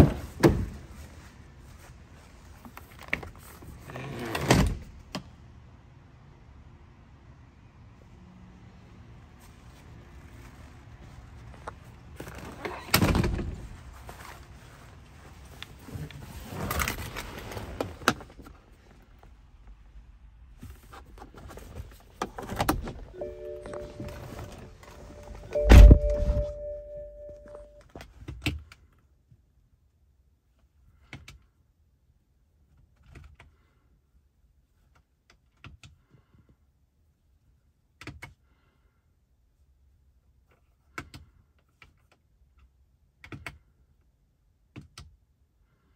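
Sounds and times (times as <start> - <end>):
heavy thump: 25.5 - 26.6.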